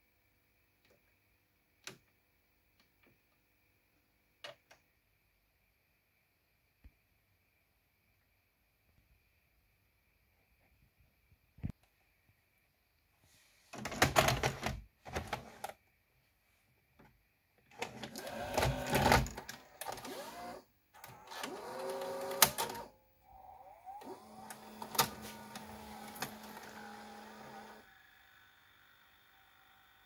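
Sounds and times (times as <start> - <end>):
loading motor whining: 17.8 - 30.0
motor running steadily: 23.4 - 30.0.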